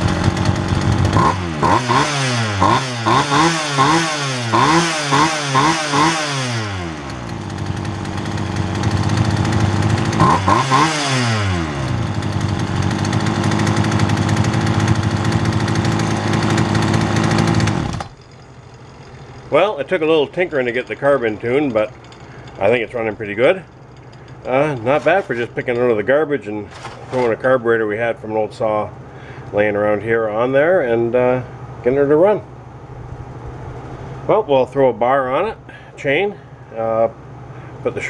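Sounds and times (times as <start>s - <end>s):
chainsaw engine revving and idling: 0.0s - 27.6s.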